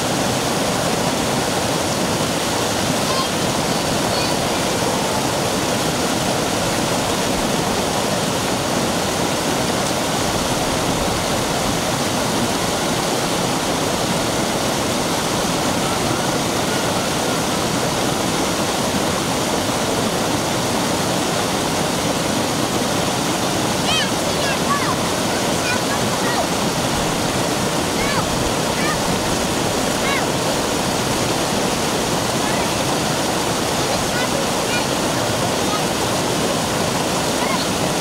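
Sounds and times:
stream rushing over rock: 0.0 - 38.0.

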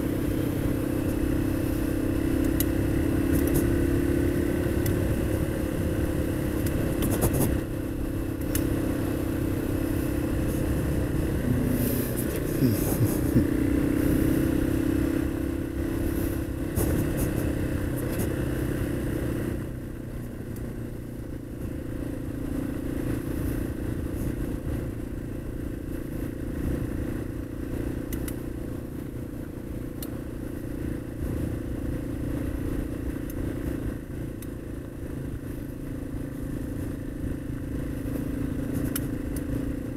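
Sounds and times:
motorcycle engine cruising: 0.0 - 39.9.

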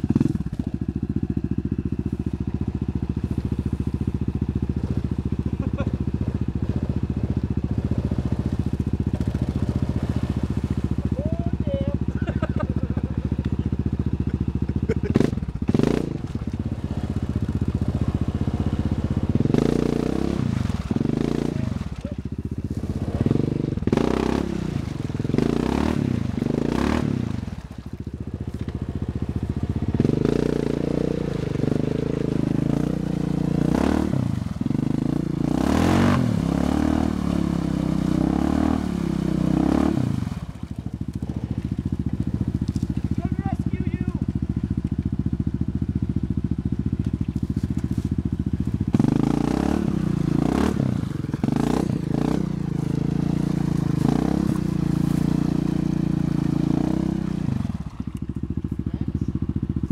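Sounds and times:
atv engine revving: 0.0 - 59.9.

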